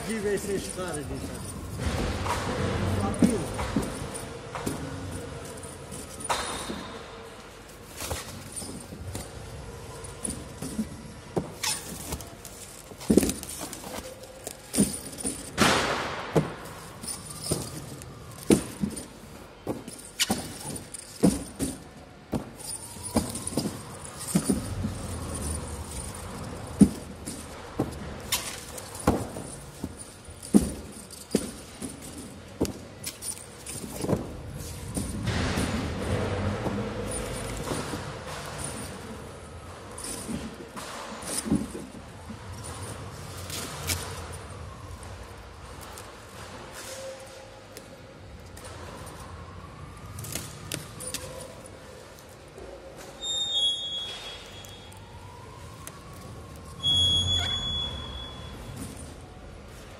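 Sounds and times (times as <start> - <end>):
low background hum: 0.0 - 59.9.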